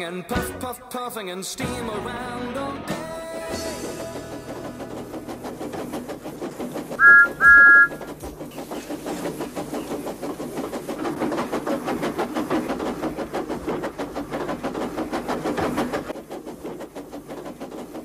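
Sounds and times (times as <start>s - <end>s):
toy train clicking rattle: 4.0s - 18.0s.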